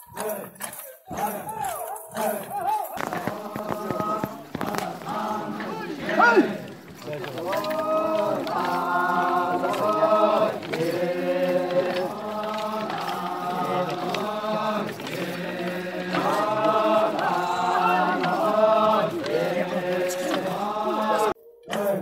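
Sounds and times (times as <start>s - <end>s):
group chanting folk song: 0.0s - 22.0s.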